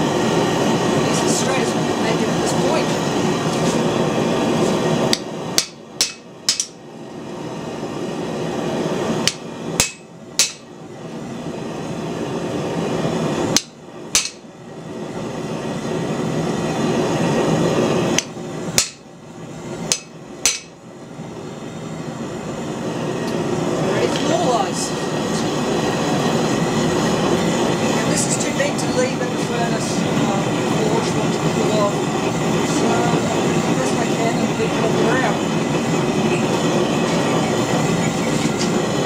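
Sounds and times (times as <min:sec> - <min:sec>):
hammer striking steel on anvil: 0:05.1 - 0:06.8, 0:09.2 - 0:10.7, 0:13.6 - 0:14.5, 0:18.2 - 0:19.1, 0:19.9 - 0:20.8.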